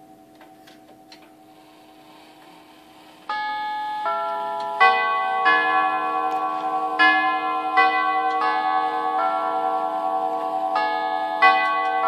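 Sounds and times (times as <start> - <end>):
tubular clock chimes: 3.3 - 12.0.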